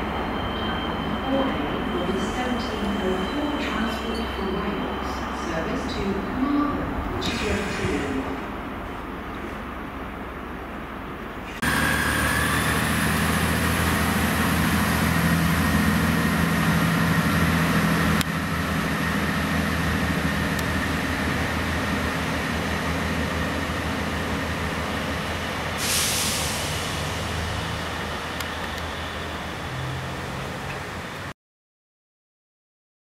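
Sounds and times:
train diesel engines droning: 0:00.0 - 0:31.3
short hiss: 0:25.8 - 0:26.9.

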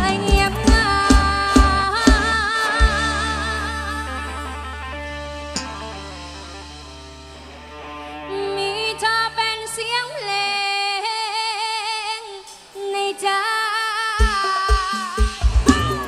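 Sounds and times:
sustained chords: 0:00.0 - 0:10.0.

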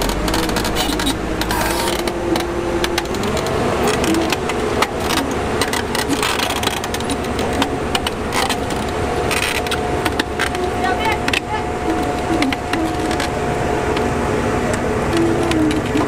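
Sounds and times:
sharp clicks and knocks: 0:00.0 - 0:14.1
diesel engine running under load: 0:00.0 - 0:16.0.

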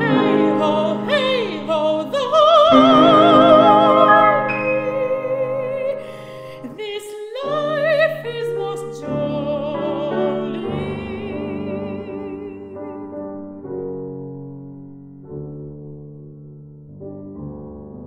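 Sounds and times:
grand piano chords: 0:00.0 - 0:06.9, 0:07.5 - 0:18.0
soprano singing with vibrato: 0:00.0 - 0:13.0.

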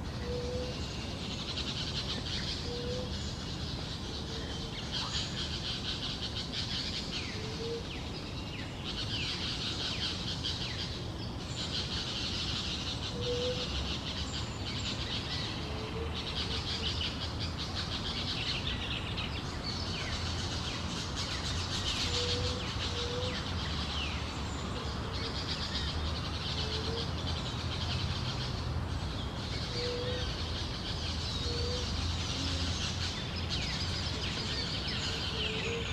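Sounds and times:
small birds chirping and singing: 0:00.0 - 0:35.9.

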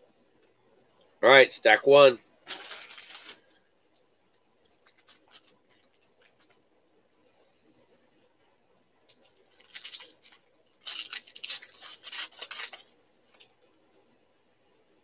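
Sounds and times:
card pack wrappers crinkling: 0:02.4 - 0:03.6, 0:04.7 - 0:06.5, 0:09.1 - 0:13.5.

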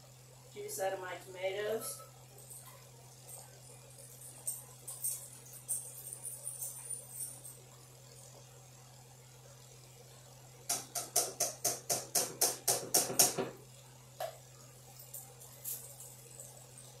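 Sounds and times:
utensil knocking against skillet: 0:10.7 - 0:13.6.

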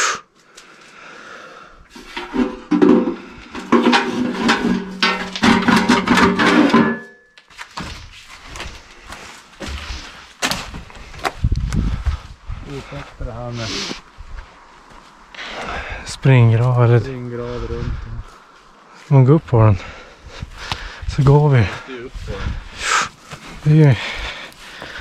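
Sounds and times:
sheet metal scraping and rattling: 0:01.9 - 0:07.2
knocks and thuds: 0:02.2 - 0:07.0.

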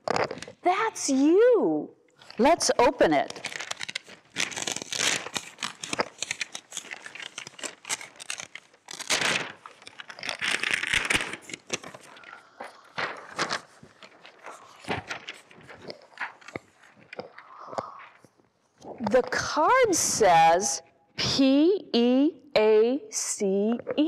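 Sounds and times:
envelope tearing: 0:00.0 - 0:00.6, 0:02.2 - 0:18.3
paper rustling: 0:00.0 - 0:00.6, 0:02.2 - 0:19.3.

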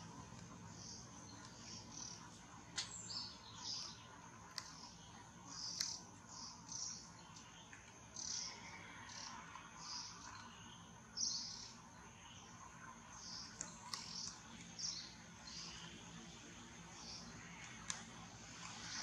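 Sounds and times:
wild birds chirping: 0:00.0 - 0:19.0.

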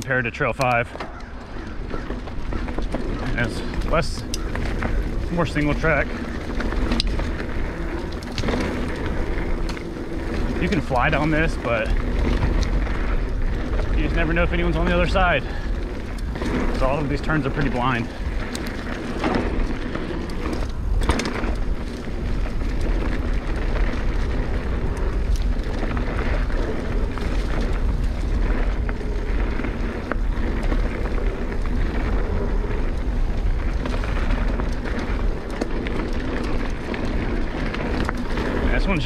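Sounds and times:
bike rattling: 0:00.0 - 0:39.0
tyre noise on dirt: 0:00.0 - 0:39.0
wind rumbling on microphone: 0:00.0 - 0:39.0.

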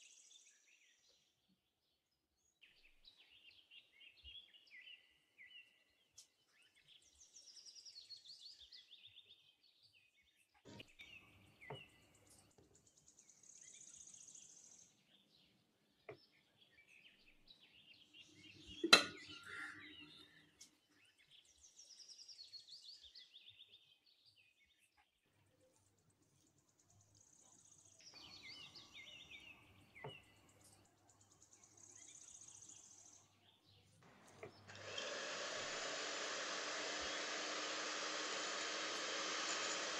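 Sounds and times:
faint birds chirping: 0:00.0 - 0:39.9
metal pan clacking: 0:18.8 - 0:19.5.

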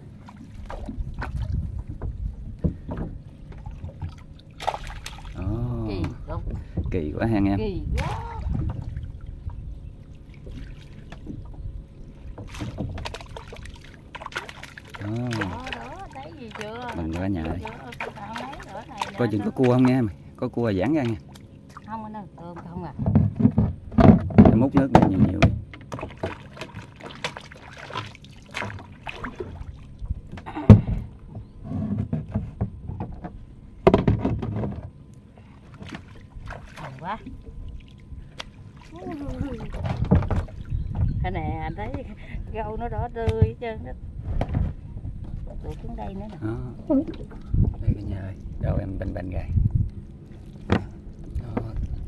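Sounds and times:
steady low rumble: 0:00.0 - 0:24.7, 0:28.5 - 0:31.6, 0:34.9 - 0:52.0
water splashing and sloshing: 0:00.0 - 0:52.0
water splashing and dripping: 0:03.5 - 0:07.0, 0:10.0 - 0:11.6, 0:12.2 - 0:20.1, 0:20.8 - 0:21.9, 0:25.3 - 0:30.0, 0:35.7 - 0:41.1
bucket thud on boat floor: 0:22.6 - 0:26.8, 0:30.3 - 0:31.1, 0:31.8 - 0:35.0, 0:39.5 - 0:41.2, 0:50.6 - 0:51.8
handling knocks and clatter: 0:22.6 - 0:26.8, 0:30.3 - 0:35.0, 0:39.7 - 0:41.2.

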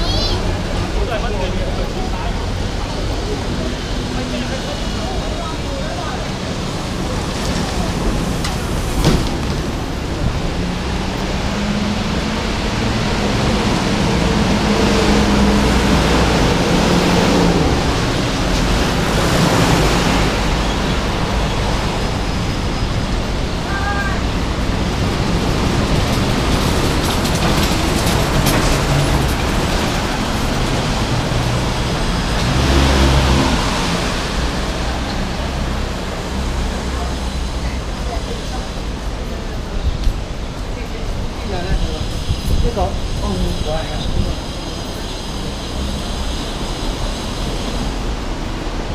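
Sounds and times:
cars driving past: 0:00.0 - 0:48.9.

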